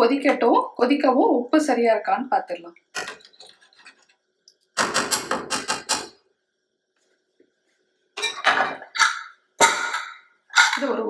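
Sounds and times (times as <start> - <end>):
metal spoon clinking on pot: 8.2 - 10.8.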